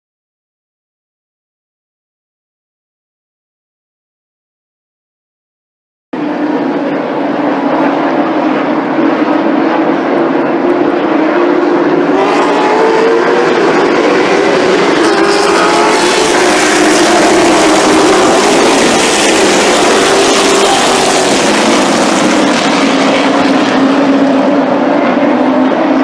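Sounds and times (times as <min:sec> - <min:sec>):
race car engines droning: 0:06.2 - 0:26.0.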